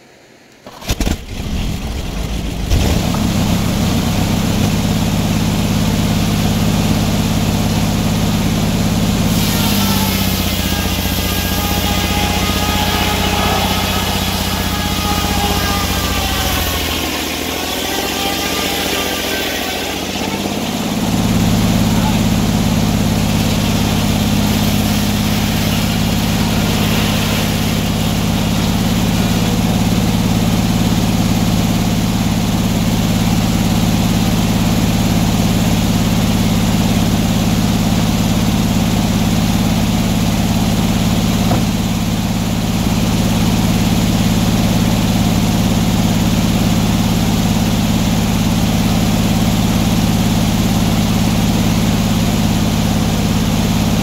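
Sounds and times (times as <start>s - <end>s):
sawmill engine droning: 0.6s - 54.0s
saw blade cutting log: 9.1s - 31.3s.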